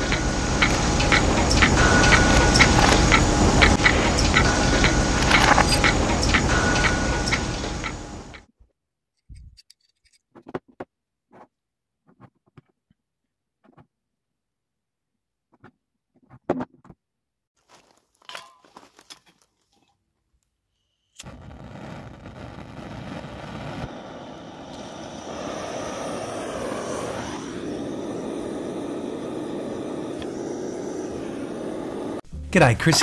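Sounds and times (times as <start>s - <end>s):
blowtorch hissing: 0.0s - 8.4s, 21.2s - 32.2s
metal parts clicking and tapping: 0.6s - 8.0s.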